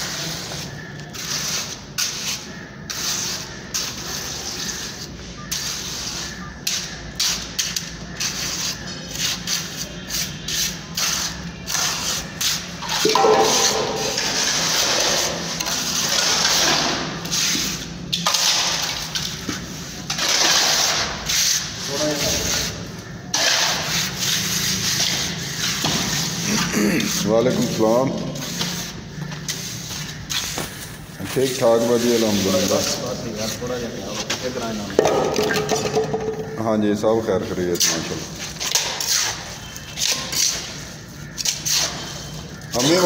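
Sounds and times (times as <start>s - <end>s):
wet plaster scraped onto brick: 0.0s - 30.9s, 37.8s - 43.0s.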